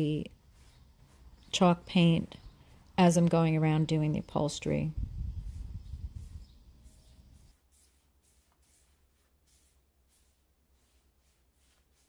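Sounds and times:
paint brush swishing: 0.0 - 1.8, 5.3 - 12.0.

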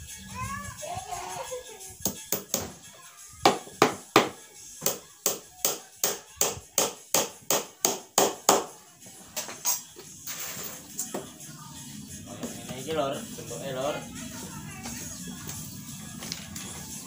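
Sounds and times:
hammer striking nails into wood: 3.5 - 8.7.

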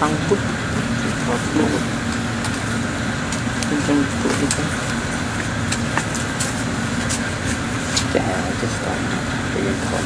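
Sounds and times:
faint voices: 0.0 - 2.6, 3.6 - 6.0, 6.6 - 10.0.

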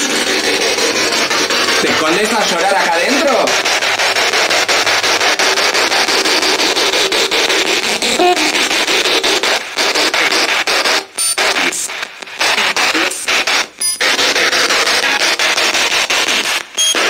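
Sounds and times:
radio static hiss with clicks: 8.0 - 17.0.

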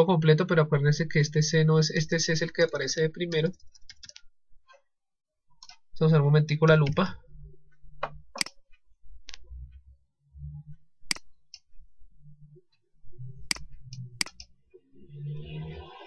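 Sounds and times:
computer clicks: 3.2 - 4.3, 8.0 - 9.4, 11.0 - 11.7, 13.4 - 14.5
faint low hum: 5.6 - 16.0.

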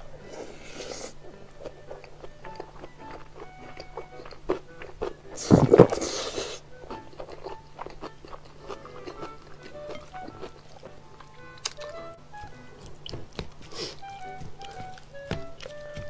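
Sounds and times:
wet chewing: 0.6 - 16.0
loud slurping: 5.4 - 6.6.

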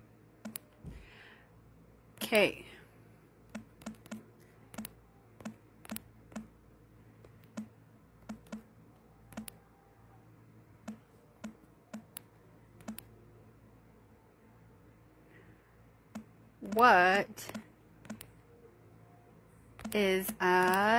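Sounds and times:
fingertips tapping touchscreen: 0.4 - 0.8, 3.5 - 6.6, 7.2 - 8.7, 9.3 - 9.6, 10.8 - 13.2, 16.1 - 18.4, 19.8 - 20.9.

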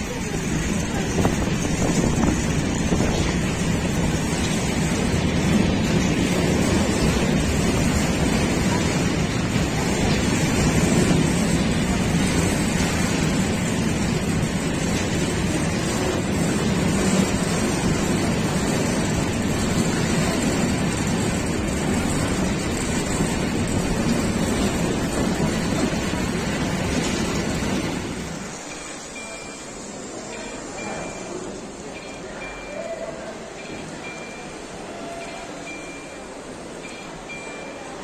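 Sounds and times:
wind rushing past microphone: 0.0 - 28.5
train wheels rumbling on rails: 0.0 - 38.0.

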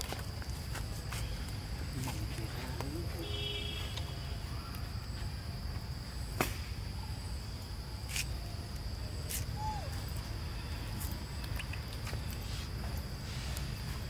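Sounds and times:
high insect drone: 0.0 - 14.0.

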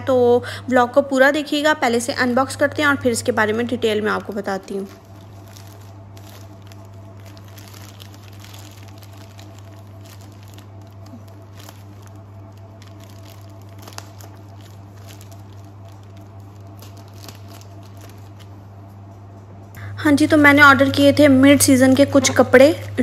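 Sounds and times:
steady low hum: 0.0 - 23.0
plastic crinkling and rustling: 4.0 - 19.4
scissors cutting plastic bag: 4.3 - 18.5.

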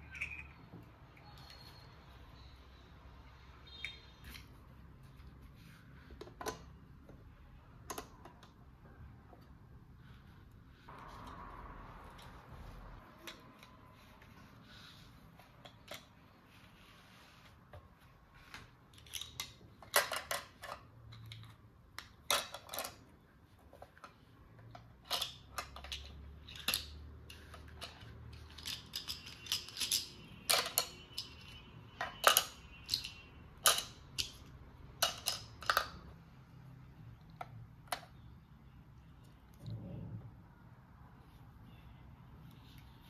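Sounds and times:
plastic toy pieces clicking: 18.9 - 23.0, 24.7 - 36.1.

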